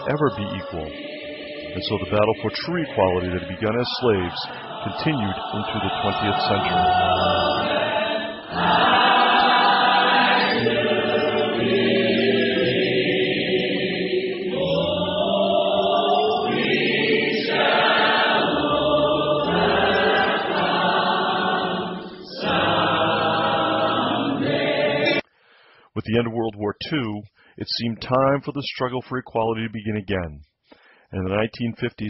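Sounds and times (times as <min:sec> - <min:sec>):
choir singing slowly: 0:00.0 - 0:25.2.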